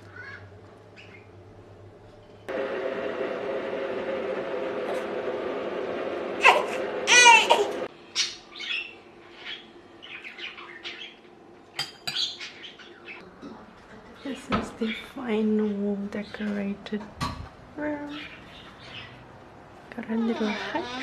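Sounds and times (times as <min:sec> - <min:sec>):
steady hum: 0:01.3 - 0:08.1.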